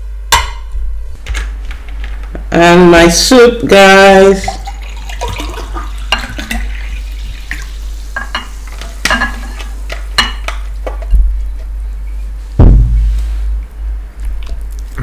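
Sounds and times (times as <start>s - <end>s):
heavy thump: 12.6s - 13.6s.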